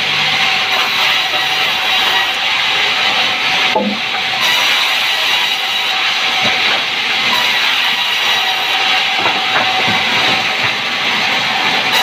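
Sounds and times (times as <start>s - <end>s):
band saw cutting wood: 0.0s - 12.0s
timber knocking on saw table: 9.2s - 10.8s.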